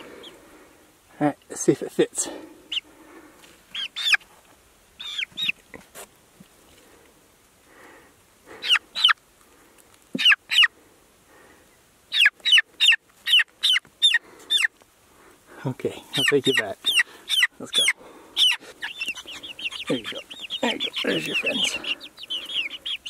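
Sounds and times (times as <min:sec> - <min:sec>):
chick peeping loudly: 0:02.6 - 0:02.9, 0:03.7 - 0:04.2, 0:05.0 - 0:05.6, 0:08.5 - 0:09.2, 0:10.2 - 0:10.7, 0:12.1 - 0:14.7, 0:16.1 - 0:23.0.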